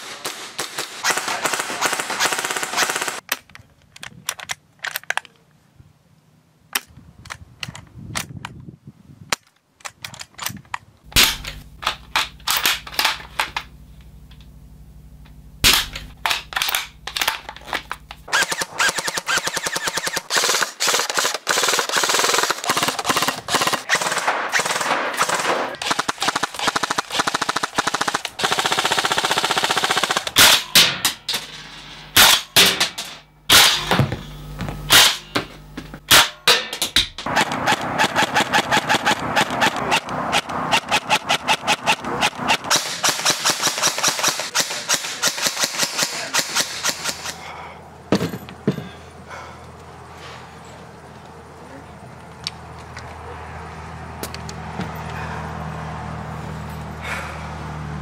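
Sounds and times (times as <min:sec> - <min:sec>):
airsoft gun full-auto fire: 0:00.0 - 0:03.2, 0:18.3 - 0:31.0, 0:37.2 - 0:47.4
airsoft gun single shots: 0:11.2 - 0:11.6, 0:15.6 - 0:16.8.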